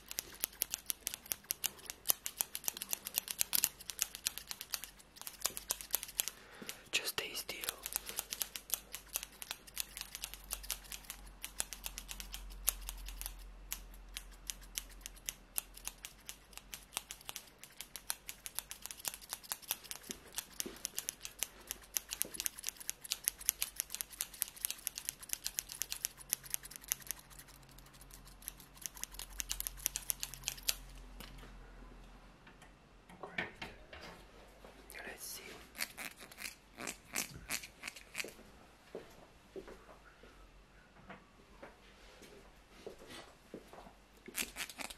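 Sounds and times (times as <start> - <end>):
scissors snipping hair: 0.0 - 31.4, 35.7 - 38.4, 44.3 - 44.9.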